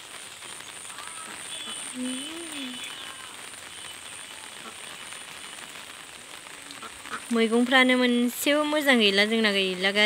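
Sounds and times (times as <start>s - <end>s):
steady hiss: 0.0s - 10.0s.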